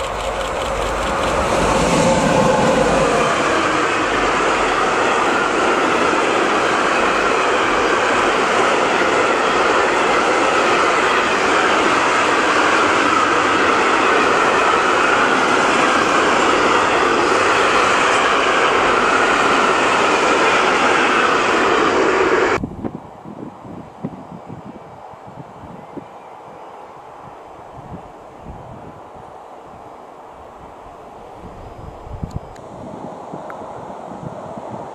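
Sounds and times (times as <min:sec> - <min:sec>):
freight train wheels on rails: 0:00.0 - 0:22.6.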